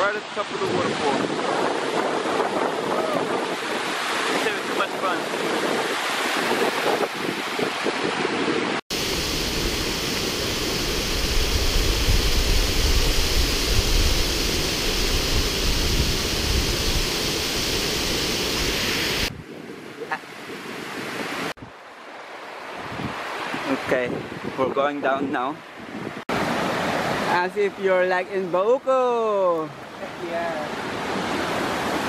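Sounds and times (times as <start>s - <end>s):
waterfall rushing: 0.0s - 7.8s, 8.8s - 19.3s
wind buffeting microphone: 0.6s - 19.9s, 22.8s - 26.5s.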